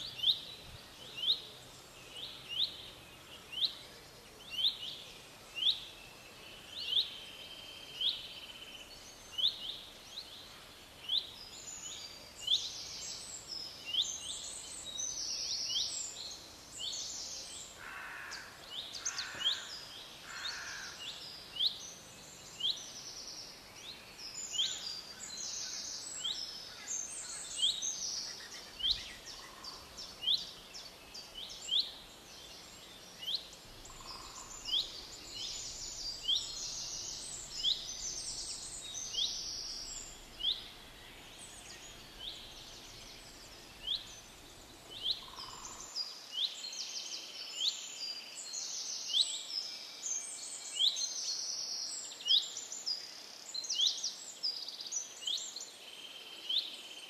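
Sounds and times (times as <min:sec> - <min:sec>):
outdoor background noise: 0:00.0 - 0:57.0
birds calling: 0:17.1 - 0:21.2, 0:24.4 - 0:46.0.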